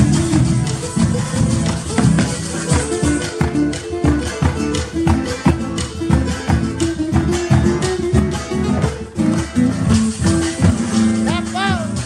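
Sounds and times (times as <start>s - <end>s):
acoustic guitar melody: 0.0s - 12.0s
bass line: 0.0s - 12.0s
other guitars: 0.0s - 12.0s
steady percussion: 0.0s - 12.0s.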